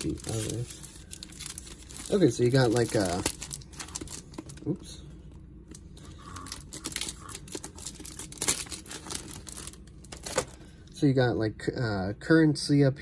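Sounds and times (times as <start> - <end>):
plastic wrap crinkling: 0.0 - 4.8, 5.7 - 10.7.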